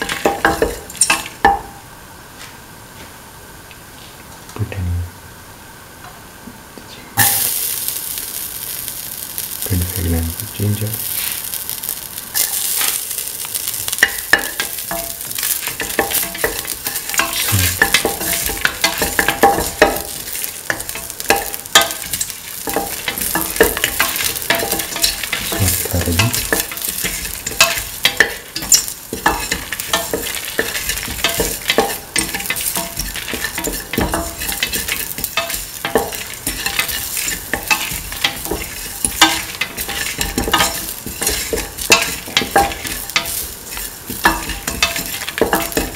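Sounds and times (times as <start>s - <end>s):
spices sizzling in hot oil: 0.0s - 2.2s, 7.2s - 45.9s
spatula scraping metal pan: 14.4s - 45.9s.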